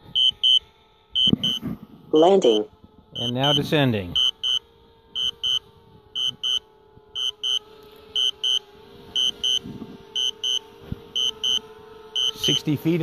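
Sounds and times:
remote controller warning beeps: 4.2s - 4.6s.

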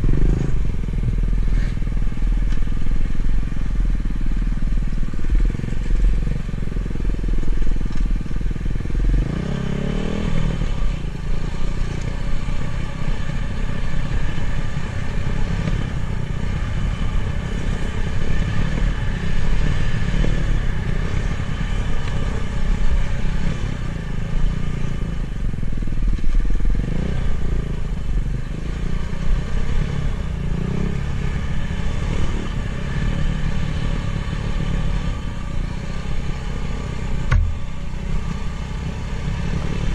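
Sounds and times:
dirt bike engine revving: 0.0s - 0.8s.

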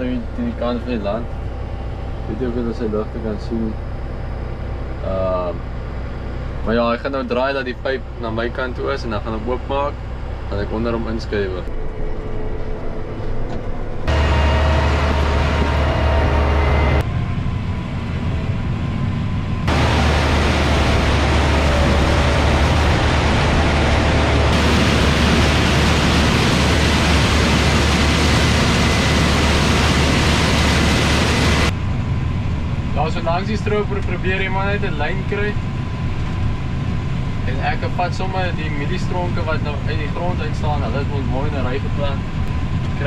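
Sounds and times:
low machinery rumble: 0.0s - 43.0s
loud rushing noise: 13.8s - 33.1s.

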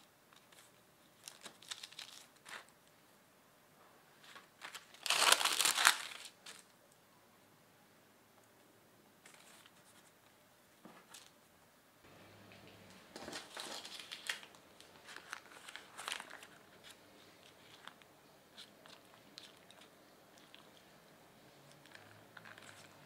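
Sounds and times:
parchment paper crinkling: 0.0s - 2.8s, 4.2s - 6.7s, 9.2s - 10.2s, 13.1s - 20.9s, 21.7s - 23.0s.

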